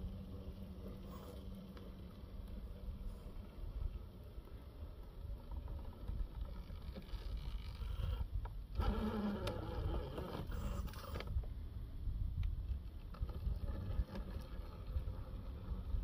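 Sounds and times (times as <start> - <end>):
toy truck electric motor whining: 7.0 - 11.3.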